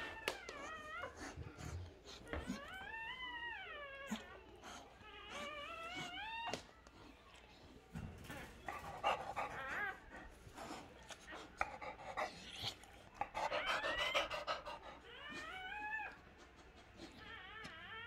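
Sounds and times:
dog panting: 0.0s - 6.6s, 8.2s - 17.8s
puppy squealing: 8.8s - 10.1s, 12.6s - 16.2s.

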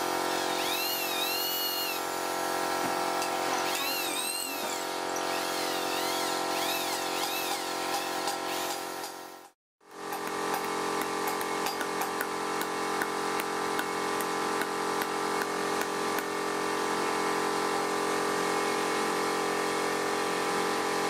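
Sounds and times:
electric drill boring into wood: 0.1s - 2.5s, 3.4s - 9.3s
high squeals: 0.6s - 2.0s, 3.6s - 7.6s.

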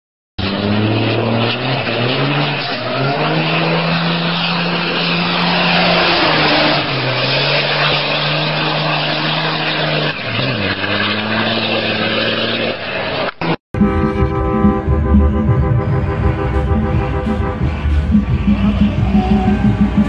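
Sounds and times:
diesel engine revving: 0.4s - 20.0s
tires spinning hiss: 0.5s - 13.3s.

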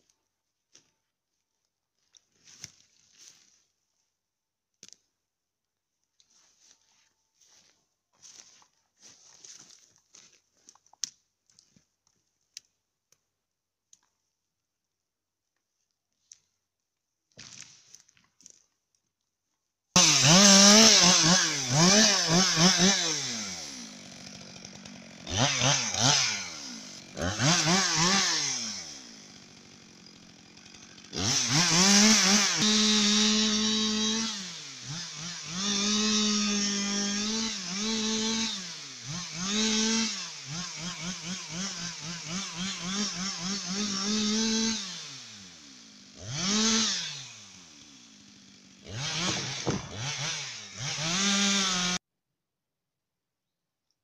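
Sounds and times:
chainsaw revving and cutting: 20.0s - 52.0s.

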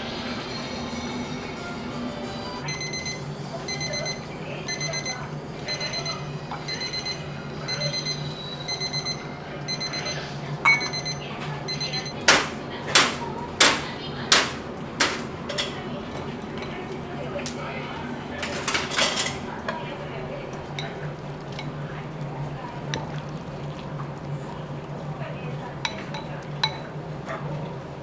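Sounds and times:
kitchen timer beeping: 2.6s - 12.3s.

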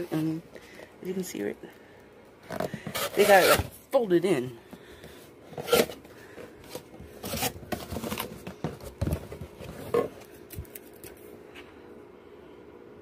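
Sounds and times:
cardboard box rustling and scraping: 2.6s - 3.7s, 6.6s - 10.2s.

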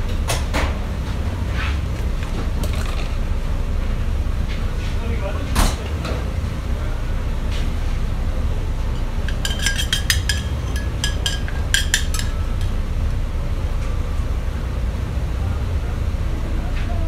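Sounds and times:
steady low hum: 6.2s - 16.2s
metal spoon clinking on saucepan: 9.0s - 12.8s.

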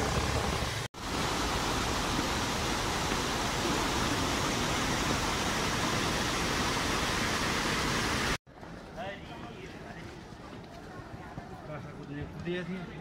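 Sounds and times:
mountain stream rushing: 0.0s - 8.4s.

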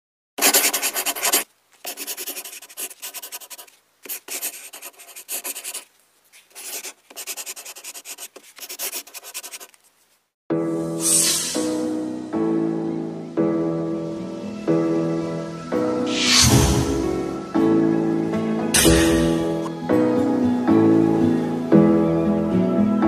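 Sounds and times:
marker pen writing on cardboard: 0.4s - 9.8s
music: 10.5s - 23.0s.

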